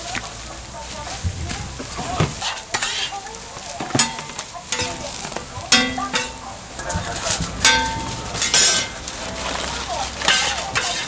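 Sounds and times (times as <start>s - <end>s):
food sizzling on griddle: 0.0s - 11.0s
metal clinks and scrapes on griddle: 3.8s - 11.0s.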